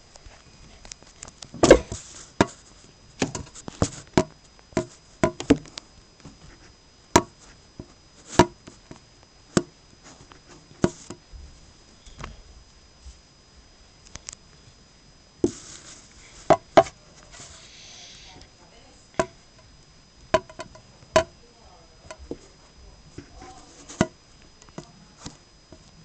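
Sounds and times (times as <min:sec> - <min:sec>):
sharp knocks and taps: 0:20.4 - 0:21.3.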